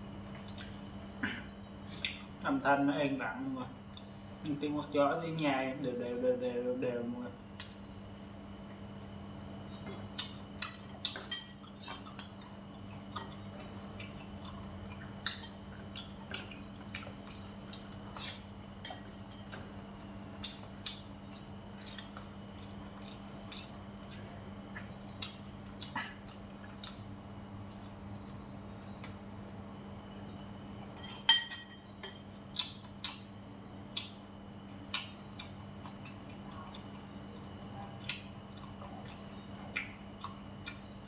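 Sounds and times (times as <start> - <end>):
steady low hum: 0.0 - 41.0
utensils clinking on porcelain bowl: 11.3 - 11.7, 18.8 - 19.6, 31.0 - 32.2.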